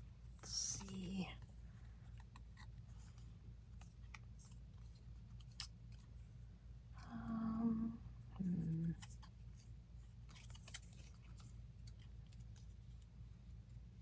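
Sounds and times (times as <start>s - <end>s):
person humming: 7.0s - 9.0s
paper rustling and clicking: 8.8s - 13.1s.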